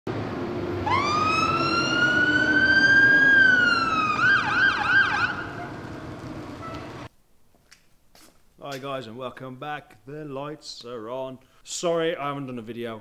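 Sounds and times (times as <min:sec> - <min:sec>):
fire engine siren wail and yelp: 0:00.2 - 0:07.1.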